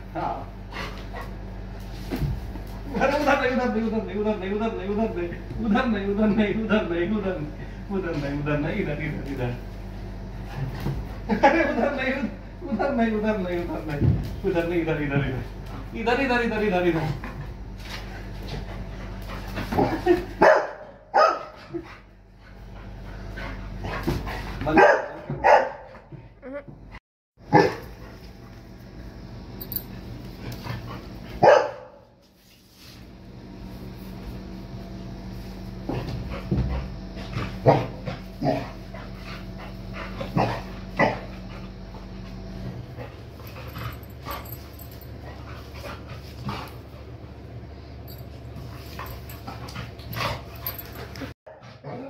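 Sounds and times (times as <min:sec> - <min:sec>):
steady low hum: 0:00.0 - 0:52.0
dog barking: 0:20.4 - 0:21.6, 0:24.7 - 0:26.0, 0:27.5 - 0:27.9, 0:31.4 - 0:32.0.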